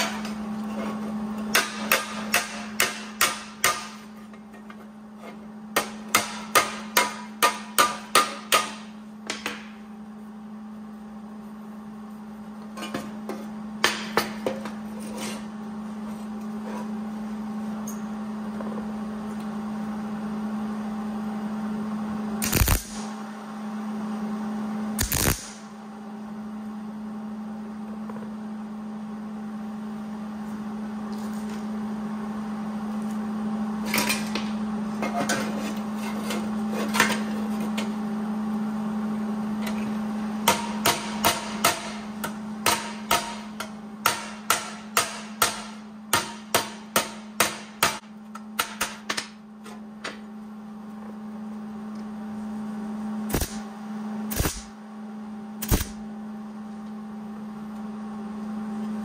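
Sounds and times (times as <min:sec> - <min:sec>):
steady low hum: 0:00.0 - 0:59.0
hammer tapping sheet metal: 0:05.8 - 0:09.7, 0:42.6 - 0:49.3.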